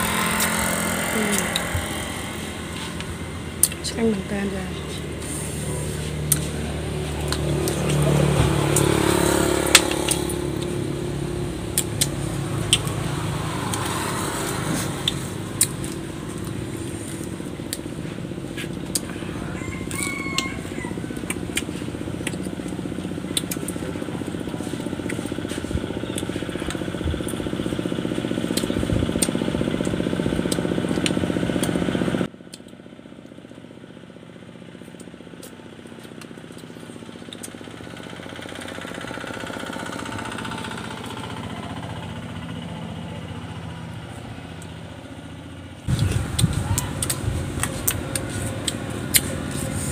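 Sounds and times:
shellfish being eaten: 0:00.0 - 0:03.9, 0:05.0 - 0:31.8, 0:45.9 - 0:49.9
motor hum: 0:00.0 - 0:49.9.

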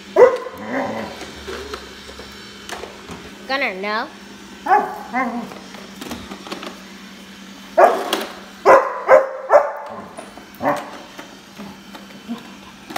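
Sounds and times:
puppy barking sharply: 0:00.2 - 0:00.5, 0:08.7 - 0:09.9.

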